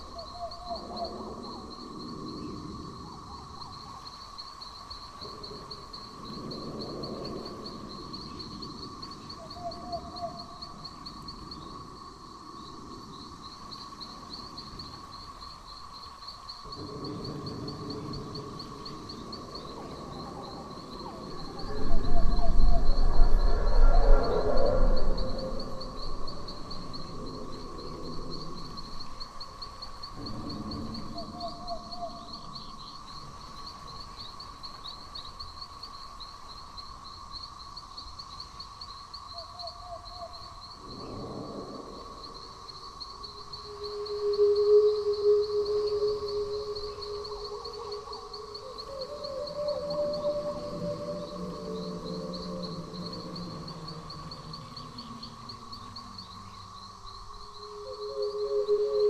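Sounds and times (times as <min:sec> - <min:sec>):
high insect-like chirping: 0:00.0 - 0:59.0
low rumble: 0:16.7 - 0:29.2.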